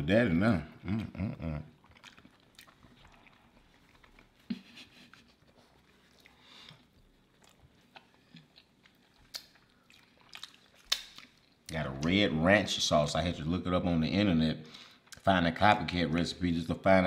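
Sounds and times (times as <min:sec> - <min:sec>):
people chewing: 0:00.8 - 0:12.1.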